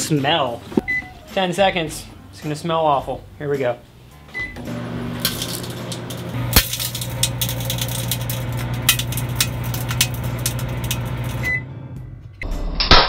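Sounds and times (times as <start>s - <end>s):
microwave oven humming: 4.4s - 12.1s
sharp crackling snaps of arcing: 6.3s - 11.5s.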